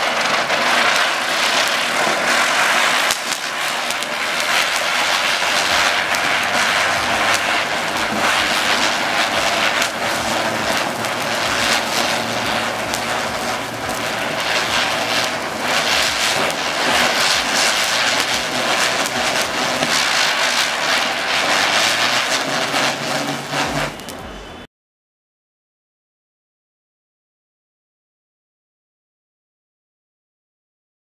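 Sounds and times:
firework spinner hissing and crackling: 0.0 - 24.7.

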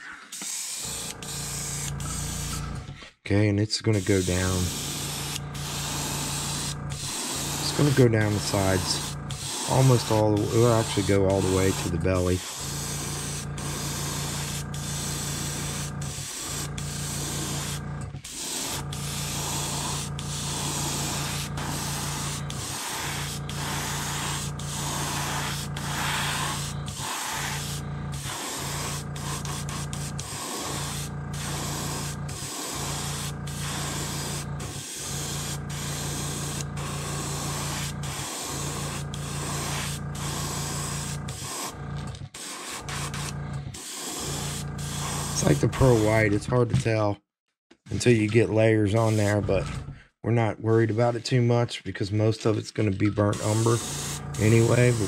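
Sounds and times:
airbrush hissing: 0.0 - 2.6, 3.9 - 41.8, 42.4 - 46.3, 48.9 - 49.4, 53.3 - 55.0
steady low hum: 0.9 - 46.8.

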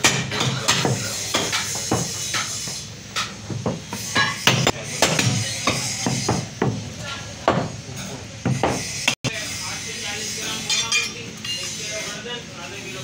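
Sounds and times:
meat cleaver chopping on wood block: 0.0 - 6.8.

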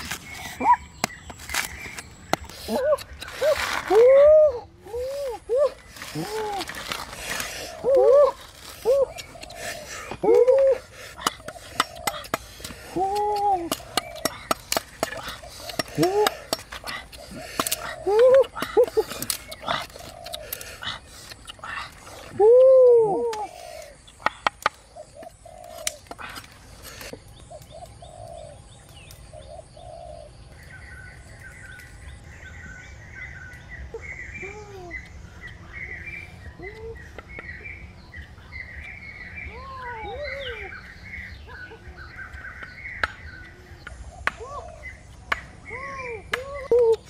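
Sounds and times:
lower rising and falling bird calls: 0.0 - 47.0
high bird chirps: 30.6 - 46.7.

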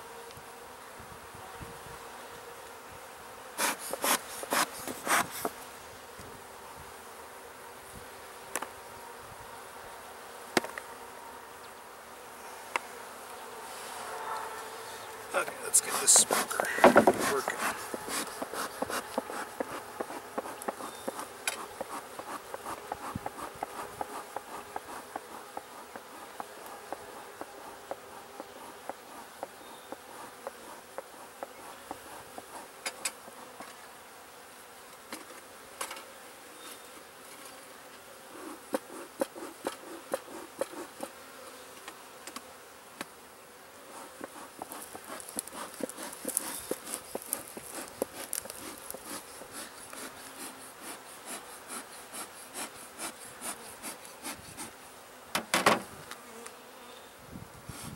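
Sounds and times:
bees buzzing: 0.0 - 57.9
bees droning past: 5.6 - 34.8.

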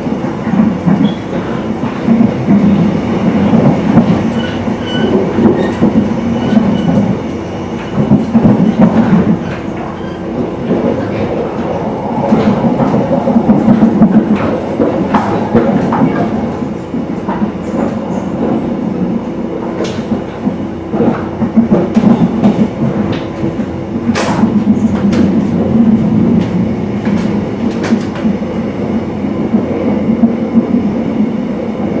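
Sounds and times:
wheels clacking over track joints: 0.0 - 31.3
train wheels rumbling on rails: 0.0 - 32.0.

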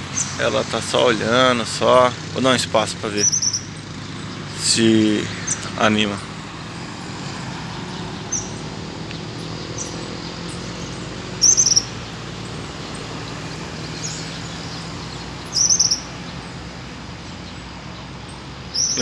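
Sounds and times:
bird song bursts: 0.0 - 19.0
faint bird chirps: 3.1 - 4.8, 7.7 - 8.7, 9.4 - 19.0.

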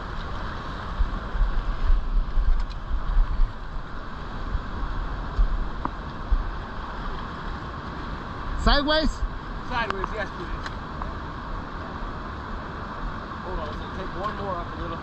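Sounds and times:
river water flowing: 0.0 - 15.0.

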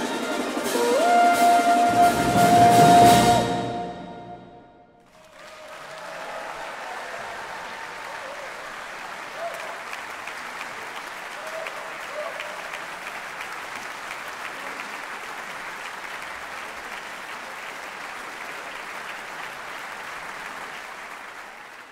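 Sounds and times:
audience applauding: 5.0 - 21.9.

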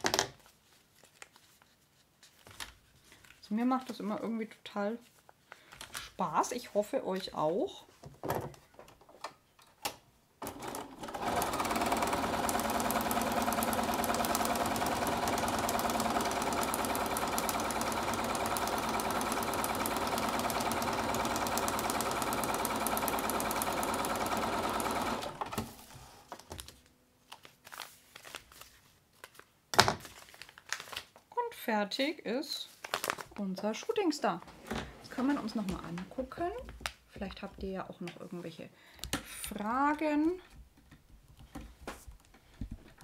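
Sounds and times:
paper rustling: 0.4 - 3.4, 25.6 - 31.3, 32.7 - 33.4
sewing machine stitching: 10.4 - 25.8.

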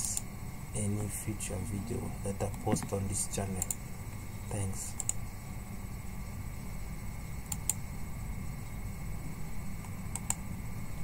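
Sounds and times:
steady low hum: 0.0 - 11.0
computer mouse clicking: 2.5 - 3.8, 4.9 - 5.2, 7.4 - 7.8, 9.8 - 10.4.

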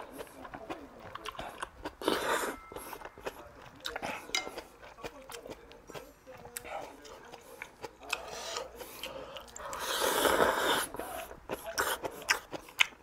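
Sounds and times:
chewing: 0.0 - 13.0
slurping noodles: 9.6 - 12.0.

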